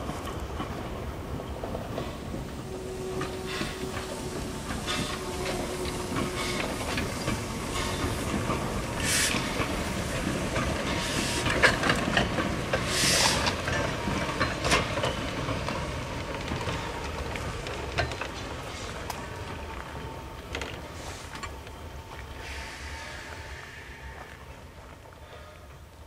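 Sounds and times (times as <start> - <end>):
train rolling rumble: 0.0 - 26.0
steam hissing: 1.9 - 17.1, 22.3 - 25.5.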